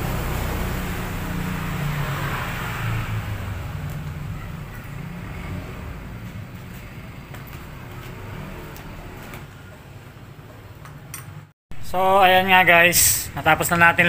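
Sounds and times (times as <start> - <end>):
passing vehicle rumble: 0.0 - 10.1.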